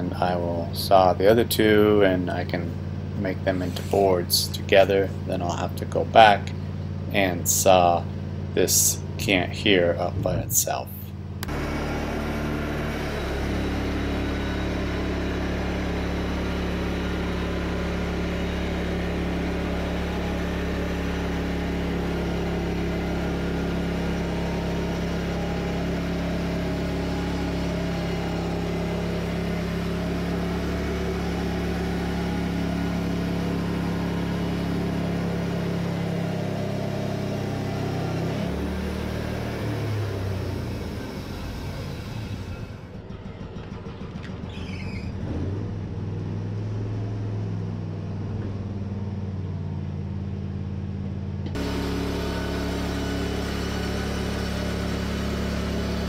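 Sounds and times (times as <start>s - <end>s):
band sawmill cutting wood: 3.3s - 6.3s, 11.4s - 42.9s, 51.5s - 56.0s.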